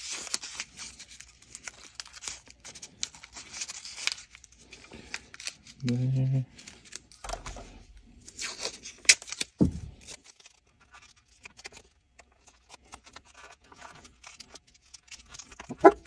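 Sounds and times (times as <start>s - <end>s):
tape crinkling and rustling: 0.0s - 16.0s
thump: 9.6s - 9.9s.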